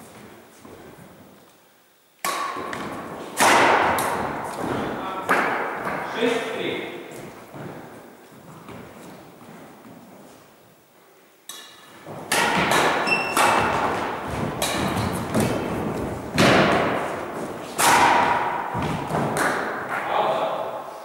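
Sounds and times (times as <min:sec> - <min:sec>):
racket hitting shuttlecock: 0:02.2 - 0:06.4, 0:11.5 - 0:21.0
footfalls on wooden floor: 0:03.8 - 0:06.1, 0:07.1 - 0:10.3, 0:12.0 - 0:17.8, 0:18.7 - 0:19.4.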